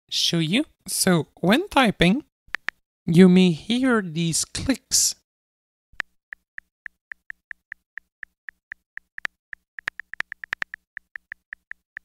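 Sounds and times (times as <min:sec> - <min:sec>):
phone keyboard clicks: 0:02.5 - 0:02.8, 0:06.0 - 0:12.0.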